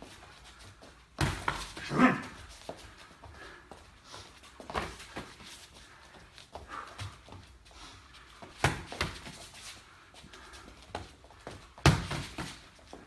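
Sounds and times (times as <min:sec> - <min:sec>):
boxing gloves smacking: 0:01.2 - 0:02.3, 0:08.4 - 0:09.4, 0:10.9 - 0:12.8.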